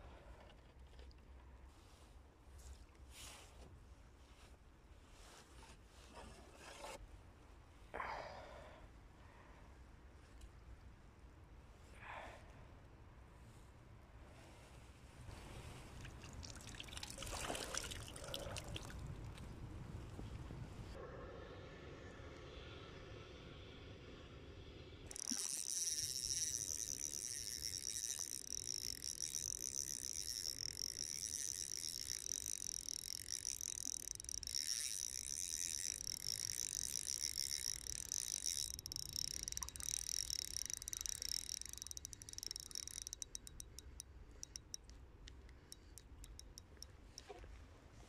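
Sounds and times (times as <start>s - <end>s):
fishing reel whirring: 25.1s - 47.3s
reel clicks: 25.1s - 47.3s.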